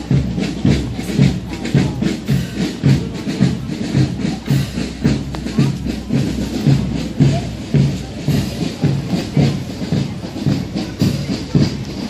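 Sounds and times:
marching drum beating: 0.0s - 12.0s.

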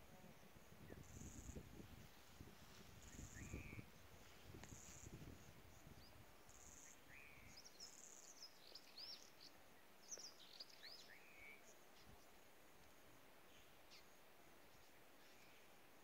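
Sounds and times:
low wind rumble: 0.0s - 6.5s
small birds chirping: 3.0s - 12.4s.

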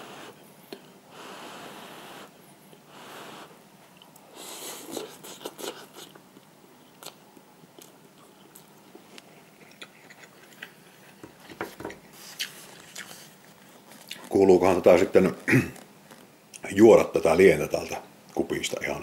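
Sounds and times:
chewing and mouth sounds: 4.8s - 11.6s, 12.2s - 14.4s.

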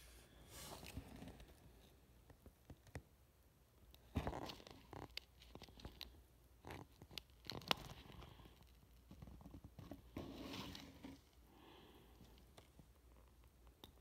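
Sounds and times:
soft rustling: 0.0s - 3.0s.

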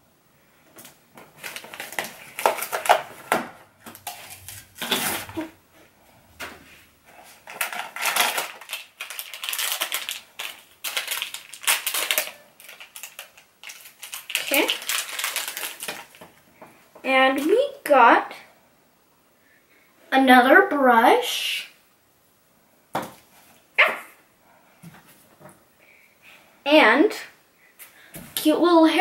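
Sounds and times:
foil packaging crinkling and tearing: 0.8s - 5.5s, 7.2s - 16.4s.

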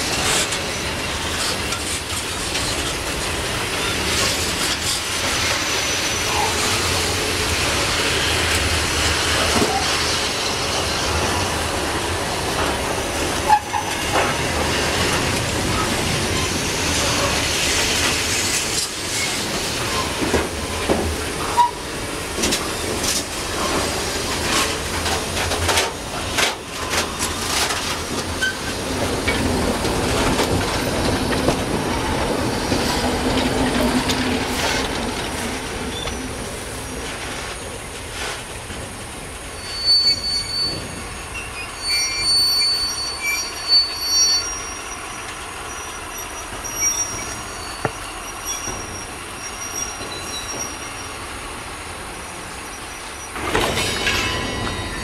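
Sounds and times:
wheels clacking over rail joints: 0.0s - 39.0s, 53.2s - 55.0s
steel wheels rushing on rail: 0.0s - 55.0s.

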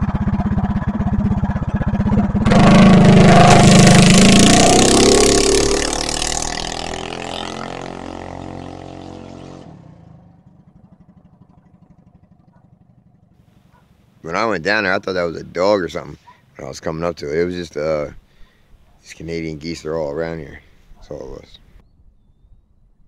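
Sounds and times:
minibike engine passing by: 0.0s - 15.0s.

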